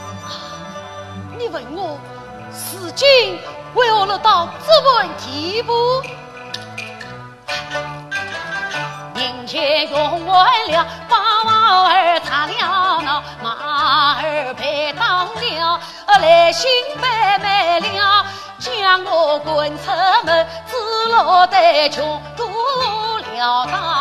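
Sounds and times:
instrumental accompaniment: 0:00.0 - 0:24.0.

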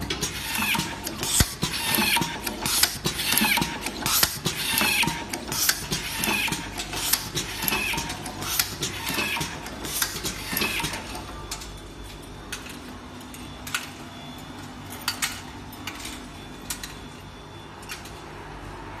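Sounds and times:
sharp machine clicks: 0:00.0 - 0:11.2.

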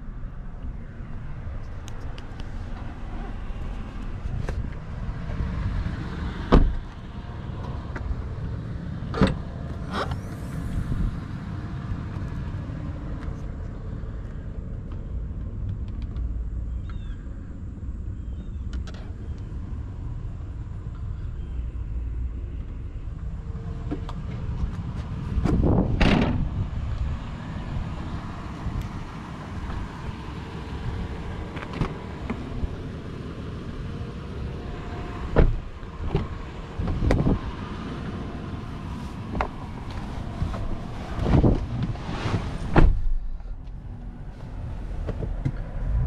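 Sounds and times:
wind rumble: 0:00.0 - 0:46.0
car doors shutting: 0:06.4 - 0:07.0, 0:09.1 - 0:10.5, 0:23.8 - 0:26.5, 0:31.4 - 0:32.8, 0:35.1 - 0:37.6, 0:38.9 - 0:43.2.

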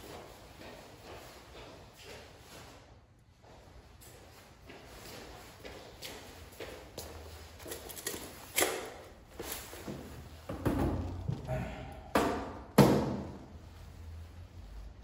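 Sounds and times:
sharp knocks and thumps: 0:10.5 - 0:13.4.

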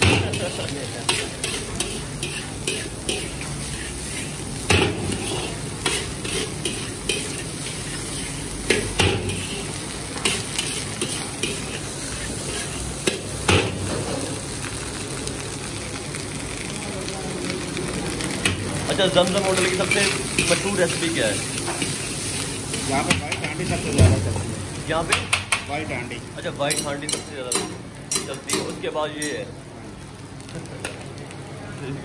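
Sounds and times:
metal spatula scraping wok: 0:00.0 - 0:13.2
rice sizzling in a wok: 0:00.0 - 0:32.0.

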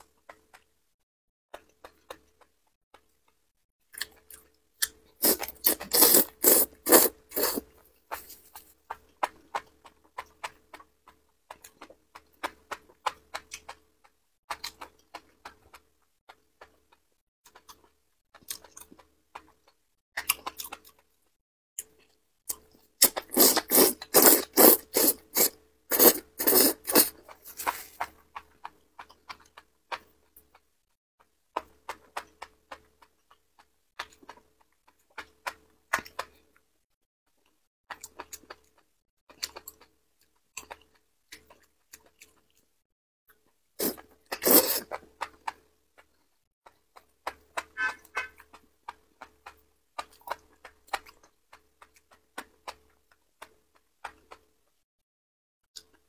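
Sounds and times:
chewing clicks: 0:01.5 - 0:08.2, 0:08.9 - 0:36.7, 0:37.4 - 0:42.7, 0:43.4 - 0:54.8, 0:55.8 - 0:56.0
loud rapid slurping: 0:05.2 - 0:07.7, 0:23.0 - 0:27.9, 0:43.8 - 0:45.0.

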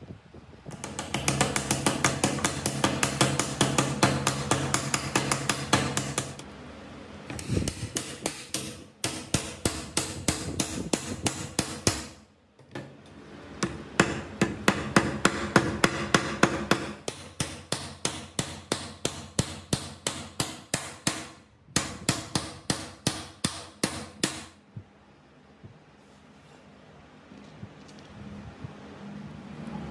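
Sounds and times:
hammer striking metal: 0:00.7 - 0:06.4, 0:07.4 - 0:12.2, 0:13.6 - 0:24.6.

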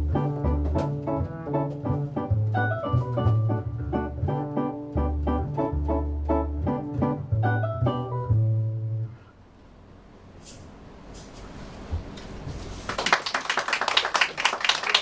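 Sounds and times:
jazz band with piano and bass: 0:00.0 - 0:09.4
audience applause: 0:12.9 - 0:15.0.

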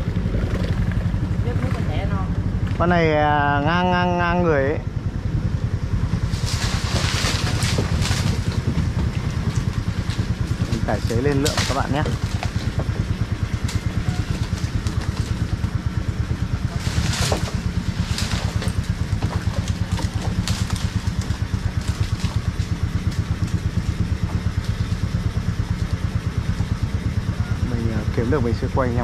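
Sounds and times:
boat engine idling: 0:00.0 - 0:29.0
dry palm fronds crackling: 0:05.9 - 0:29.0.

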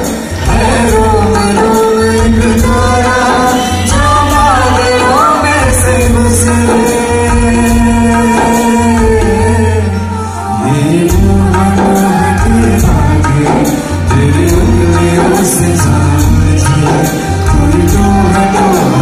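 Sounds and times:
woman and man singing: 0:00.0 - 0:19.0
low drum beat: 0:10.8 - 0:19.0.

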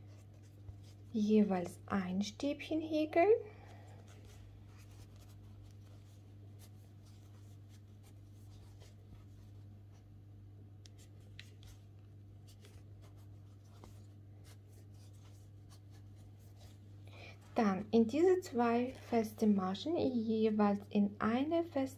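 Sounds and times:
steady low hum: 0:00.0 - 0:21.9
crochet hook rubbing yarn: 0:12.4 - 0:16.8.

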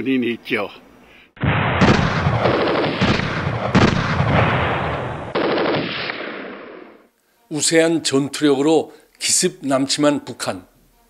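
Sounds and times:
heavy gunshots: 0:01.4 - 0:07.0
machine-gun fire: 0:01.4 - 0:07.0.

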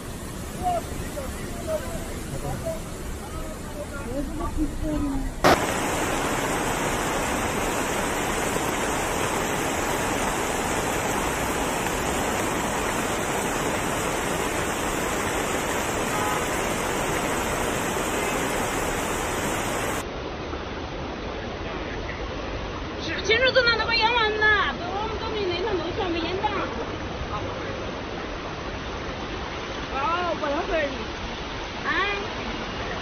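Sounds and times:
water rushing: 0:00.0 - 0:21.8, 0:22.4 - 0:33.0.

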